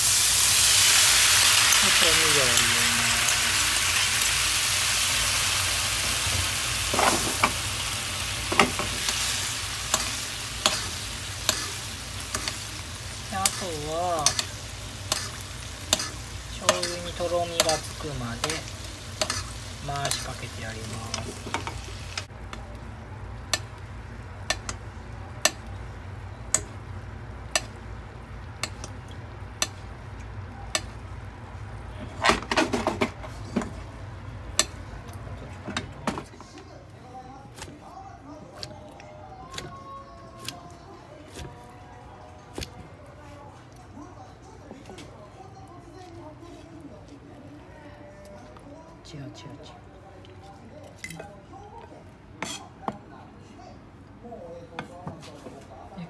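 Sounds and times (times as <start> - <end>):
sauce sizzling in a frying pan: 0.0 - 22.3
utensils ticking against pan: 13.3 - 20.5, 24.4 - 24.8, 28.6 - 28.9, 29.6 - 29.8.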